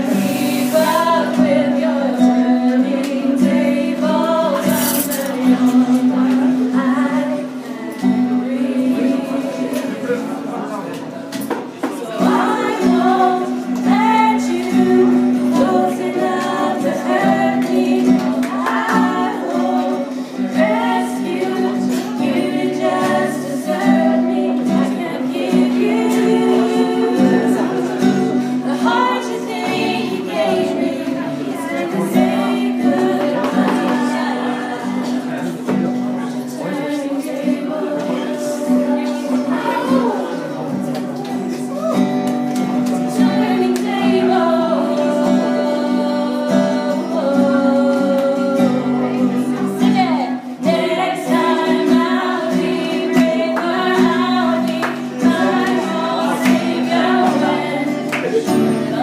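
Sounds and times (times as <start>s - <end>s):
woman singing: 0.0s - 10.2s, 11.8s - 35.5s, 36.2s - 40.5s, 42.9s - 59.0s
acoustic guitar: 0.0s - 59.0s.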